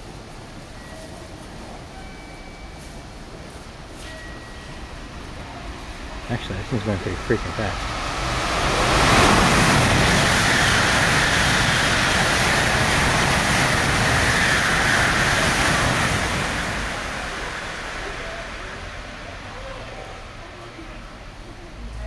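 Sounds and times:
high-speed train rushing past: 0.0 - 22.0.

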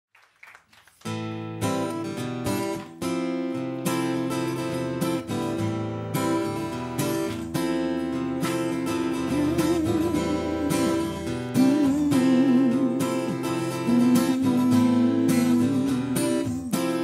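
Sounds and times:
acoustic guitars strumming: 1.0 - 17.0.

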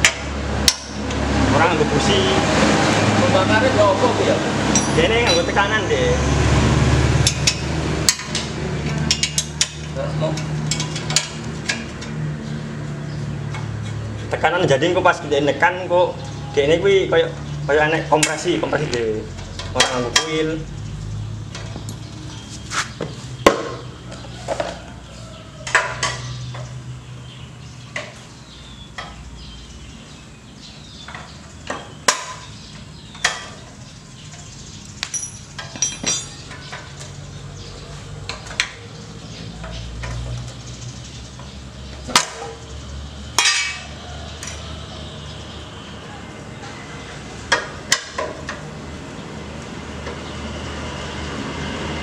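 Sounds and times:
hand tools clinking on metal: 4.7 - 5.8, 7.2 - 12.2, 34.3 - 37.2, 43.4 - 44.6.

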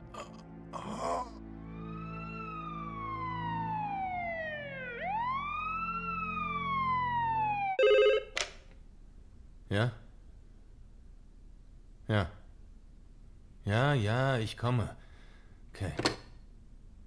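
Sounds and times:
siren wailing: 1.4 - 7.9.

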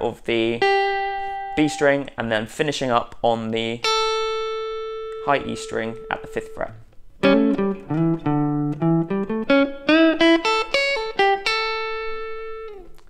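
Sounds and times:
electric guitar lick: 0.6 - 1.8, 3.8 - 13.0.

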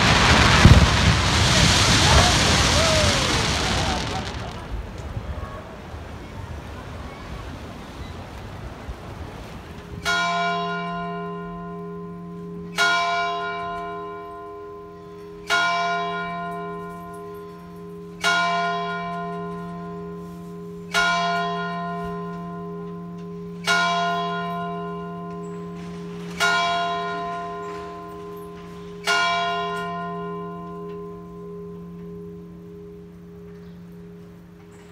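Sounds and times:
church bell tolling: 9.9 - 34.9.

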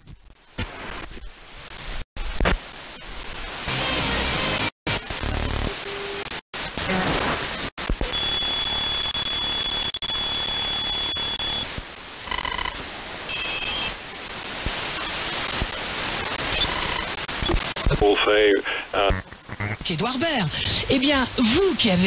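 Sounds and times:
radio static hiss: 0.0 - 22.0
short beeps: 8.1 - 11.8.

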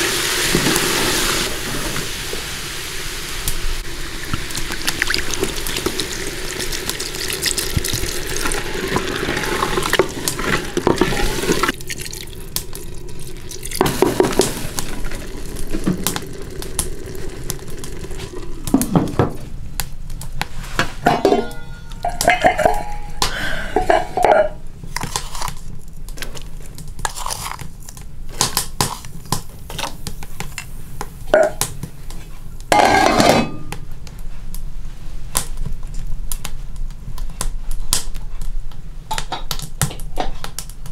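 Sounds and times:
water pouring into a pot: 0.0 - 19.2
lids knocking and clinking: 7.1 - 12.3, 21.1 - 24.4, 32.8 - 33.8.

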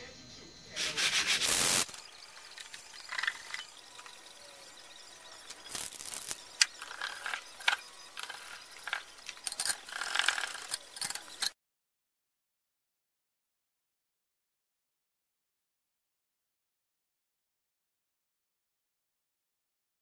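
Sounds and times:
hand sanding: 0.8 - 1.9
tools clicking and rattling: 5.5 - 11.6.

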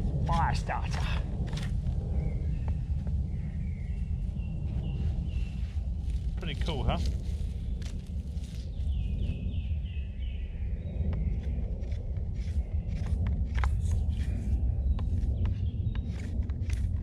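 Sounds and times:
low rumble: 0.0 - 17.0
songbird singing: 0.0 - 17.0
knife shaving wood stick: 11.4 - 17.0.

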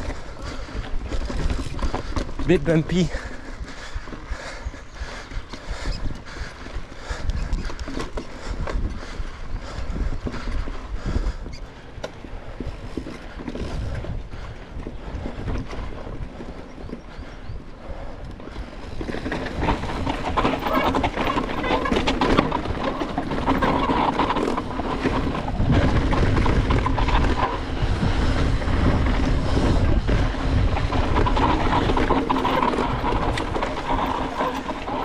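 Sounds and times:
bike rattling over bumps: 0.0 - 35.0
tyres rumbling over dirt: 0.0 - 35.0
wind buffeting microphone: 0.0 - 35.0.

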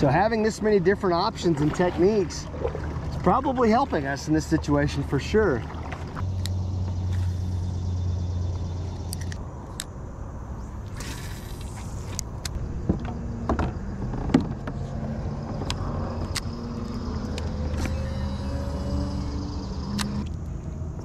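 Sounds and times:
fishing rod and reel clicking: 8.8 - 9.9, 15.6 - 20.4.

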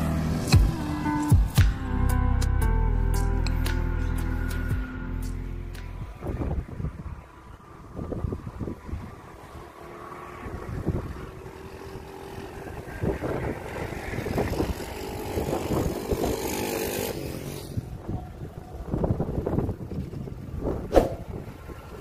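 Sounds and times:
small engine droning: 0.0 - 22.0
wind buffeting microphone: 5.9 - 22.0.

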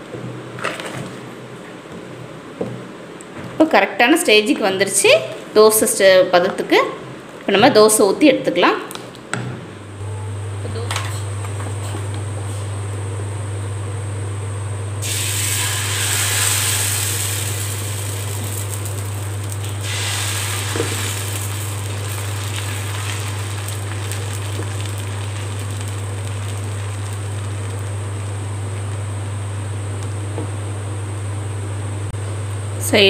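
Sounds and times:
batter sizzling on hot pan: 15.0 - 29.2.

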